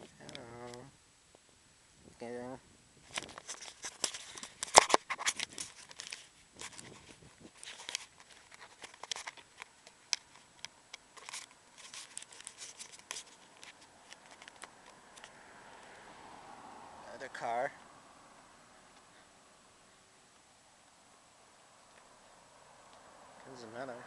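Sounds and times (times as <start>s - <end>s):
camera handling crackling and rustling: 3.0s - 15.9s.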